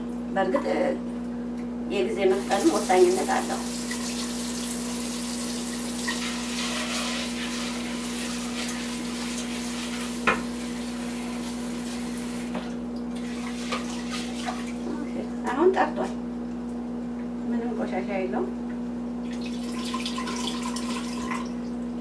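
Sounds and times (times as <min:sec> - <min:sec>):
tap water running into saucepan: 0:02.4 - 0:14.7, 0:19.3 - 0:21.6.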